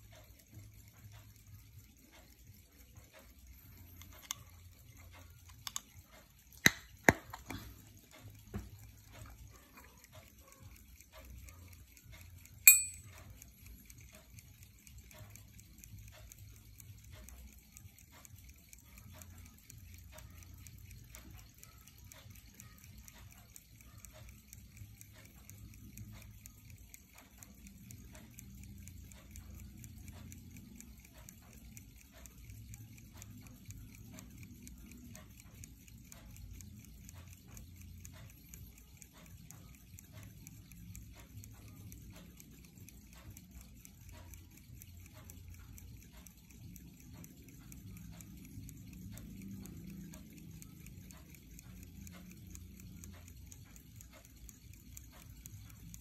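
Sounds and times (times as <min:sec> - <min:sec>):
watch ticking faintly: 0:00.0 - 0:56.0
ringing metal click: 0:12.6 - 0:13.3.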